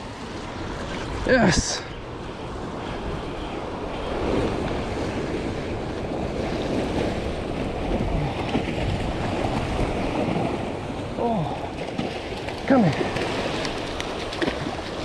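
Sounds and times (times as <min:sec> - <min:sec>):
wind buffeting microphone: 0:00.0 - 0:15.0
surf breaking on rocks: 0:06.2 - 0:15.0.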